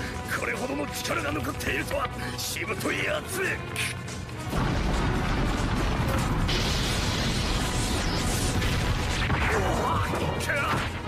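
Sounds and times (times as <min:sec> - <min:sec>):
rumble and crackle of energy: 0:00.0 - 0:11.0.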